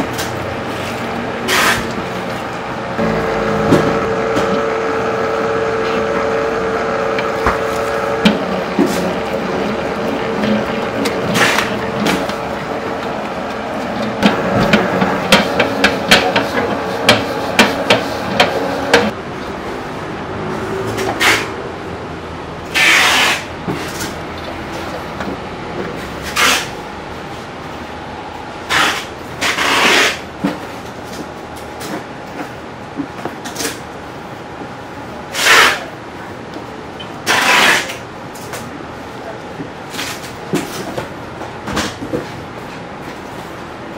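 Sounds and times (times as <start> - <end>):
steady background hum: 0.0 - 43.9
dough mixer motor hum: 3.0 - 19.1.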